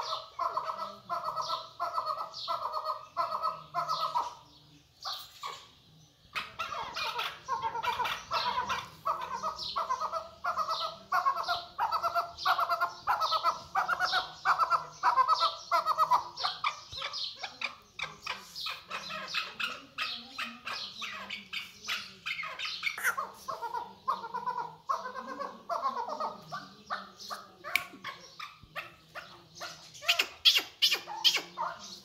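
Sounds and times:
partridge calling: 0:00.0 - 0:32.0.

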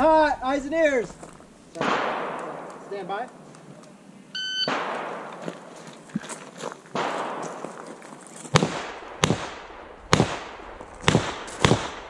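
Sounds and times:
handgun shots with echo: 0:04.7 - 0:05.6, 0:06.9 - 0:07.7.

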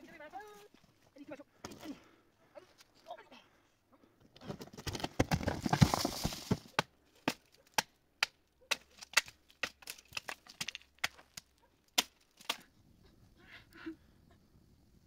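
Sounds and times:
clatter of hard knocks: 0:04.4 - 0:06.8.

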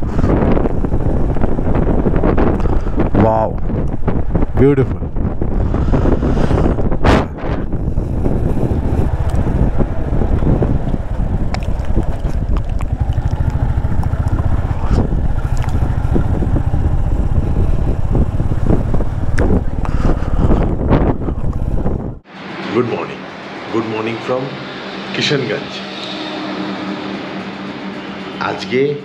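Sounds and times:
motorcycle engine rumble: 0:00.0 - 0:22.3
wind buffeting microphone: 0:00.0 - 0:22.3.

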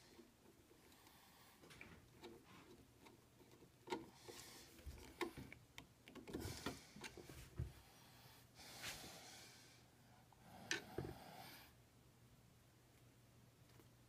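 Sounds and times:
faint wire clicks and rustles: 0:00.0 - 0:07.8.

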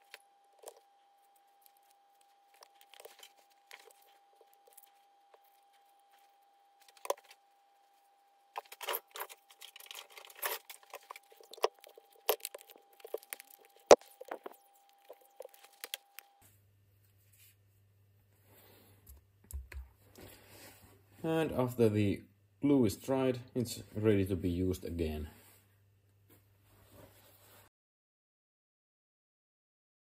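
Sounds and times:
faint steady whine: 0:00.0 - 0:19.1.

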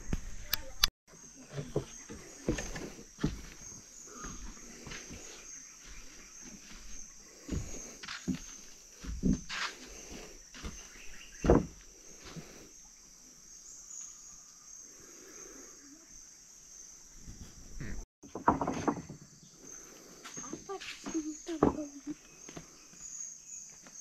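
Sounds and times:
high-pitched insect chorus: 0:01.1 - 0:17.8, 0:18.7 - 0:24.0.

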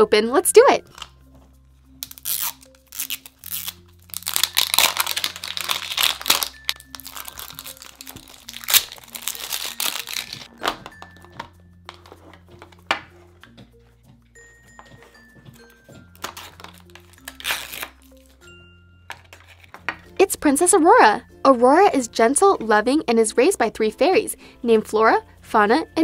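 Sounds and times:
background music: 0:00.0 - 0:26.0
plastic wrap crinkling and tearing: 0:02.0 - 0:10.8, 0:16.2 - 0:18.3.

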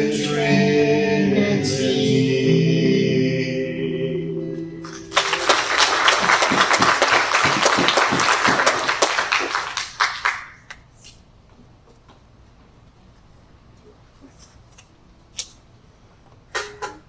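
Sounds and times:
congregation applauding: 0:04.8 - 0:10.7.

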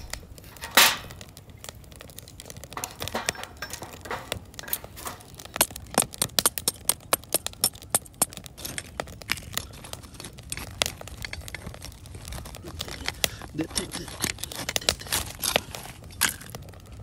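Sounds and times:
ice shards crunching: 0:08.2 - 0:16.6.

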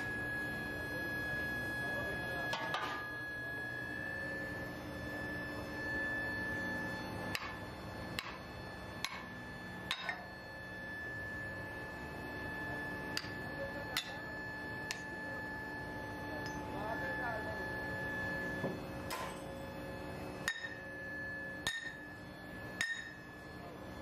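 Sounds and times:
high-pitched machine whine: 0:00.0 - 0:24.0.

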